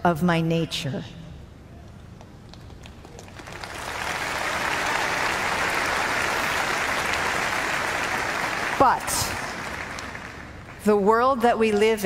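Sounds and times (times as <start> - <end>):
audience applauding: 2.6 - 10.8.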